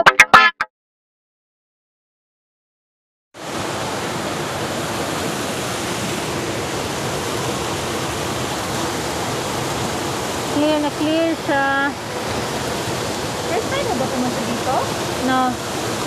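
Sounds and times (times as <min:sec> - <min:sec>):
water-wall fountain splashing: 0:03.4 - 0:16.0.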